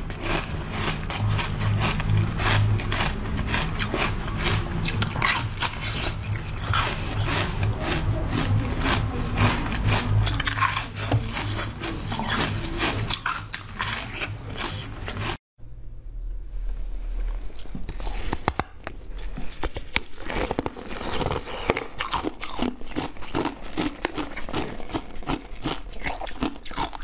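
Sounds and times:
crunching and chewing: 0.0 - 15.4, 17.2 - 27.0
low hum: 0.0 - 19.7.

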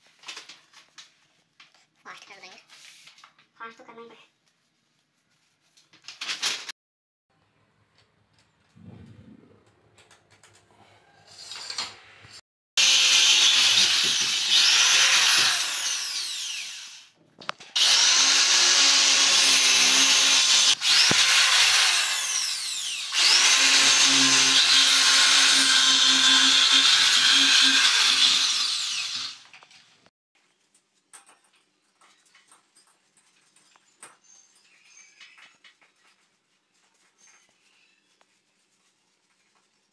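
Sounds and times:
power drill whining into wall: 12.8 - 17.1, 17.8 - 29.6.

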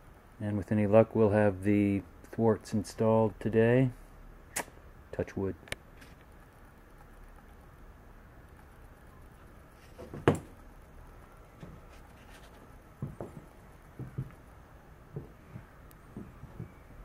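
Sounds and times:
soft low thuds: 12.9 - 17.0.

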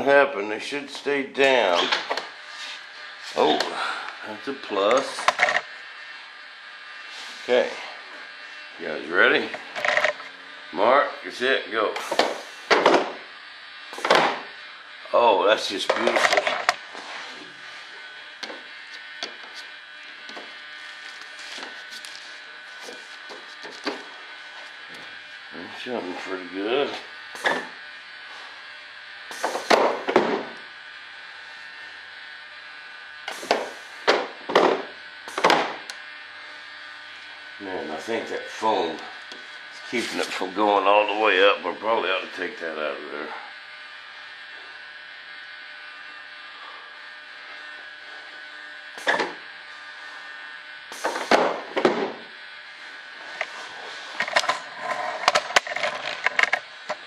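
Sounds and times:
rustling hissing bursts: 12.0 - 12.7, 29.3 - 29.7, 50.9 - 51.3
air hissing: 12.0 - 13.2, 27.3 - 27.8, 29.3 - 30.6, 33.2 - 34.3, 35.2 - 35.8, 50.9 - 52.1.

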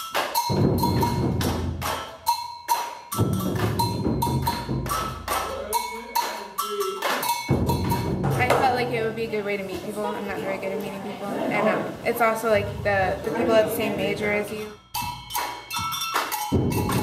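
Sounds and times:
deep barrel drum beats: 0.5 - 2.3, 3.1 - 6.2, 7.4 - 10.6, 12.5 - 17.0.

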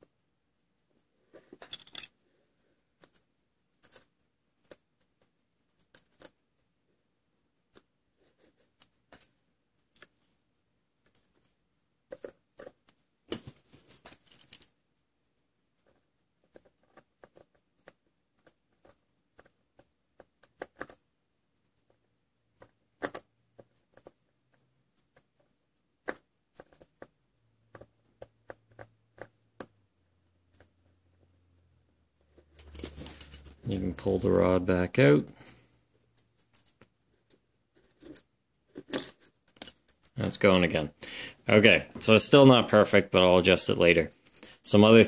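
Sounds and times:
small metal parts rattling: 1.6 - 2.2, 13.3 - 14.8, 32.5 - 33.8, 38.0 - 40.2.

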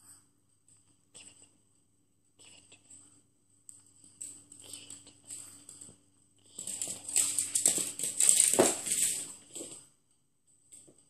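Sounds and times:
dog claws pattering on wooden floor: 3.7 - 9.9.

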